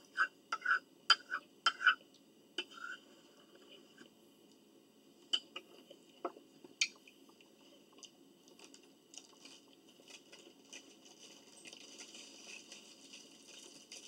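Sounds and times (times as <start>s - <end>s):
faint chewing and mouth sounds: 5.2s - 14.0s.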